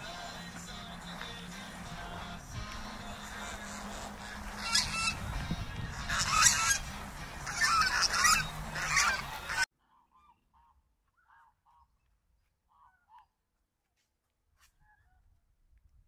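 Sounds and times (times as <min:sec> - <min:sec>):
geese honking: 0:00.0 - 0:12.0.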